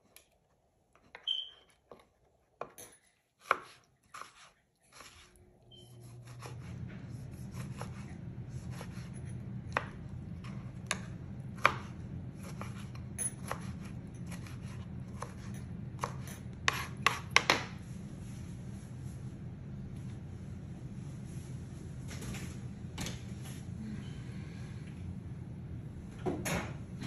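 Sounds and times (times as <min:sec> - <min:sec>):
steady low hum: 0:05.3 - 0:27.0.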